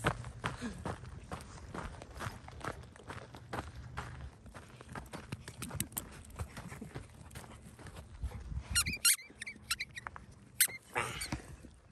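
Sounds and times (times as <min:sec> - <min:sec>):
short high squeaks: 0:08.8 - 0:10.9.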